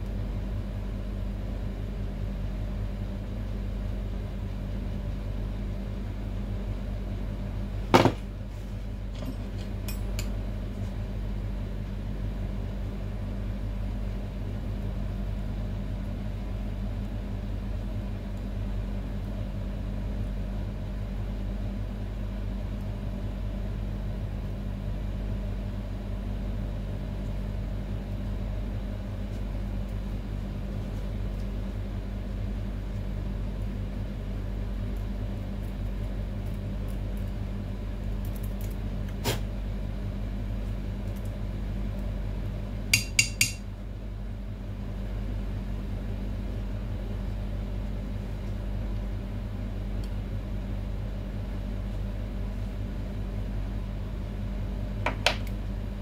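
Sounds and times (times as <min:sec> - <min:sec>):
low machine hum: 0:00.0 - 0:56.0.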